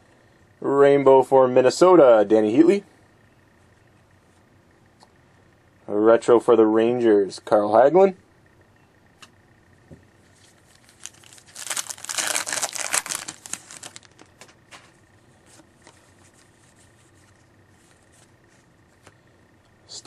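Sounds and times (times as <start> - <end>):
wrapper tearing and crinkling: 10.6 - 14.4.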